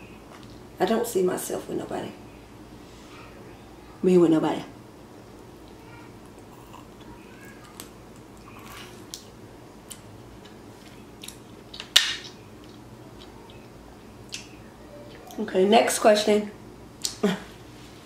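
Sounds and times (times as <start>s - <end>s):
chewing: 5.6s - 11.9s.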